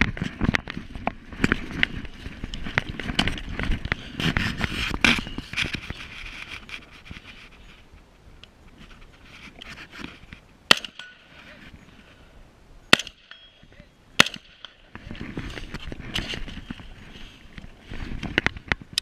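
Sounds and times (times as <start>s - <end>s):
gear scraping and knocking on shingles: 0.0s - 10.5s, 14.3s - 19.0s.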